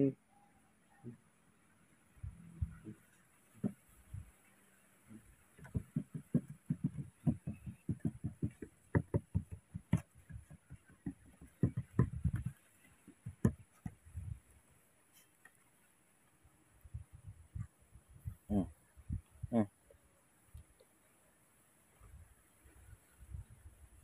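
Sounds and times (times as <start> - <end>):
monkey patting on wooden bench: 3.5 - 4.2, 5.5 - 14.4.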